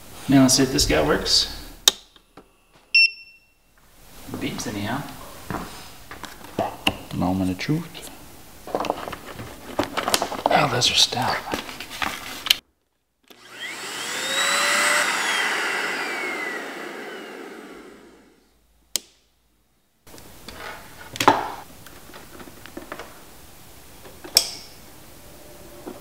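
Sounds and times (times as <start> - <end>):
faint background noise: 0.0 - 13.3
handheld vacuum motor whining: 13.3 - 18.4.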